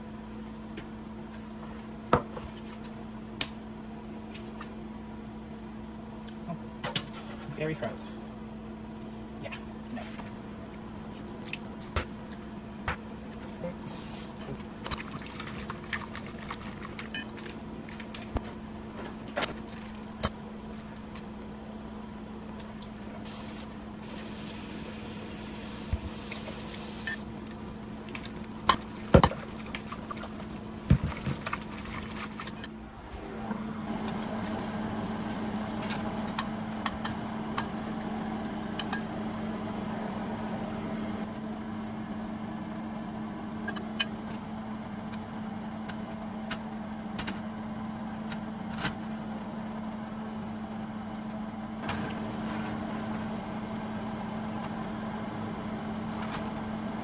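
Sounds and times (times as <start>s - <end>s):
steady hum: 0.0s - 57.0s
hiss: 23.3s - 27.2s.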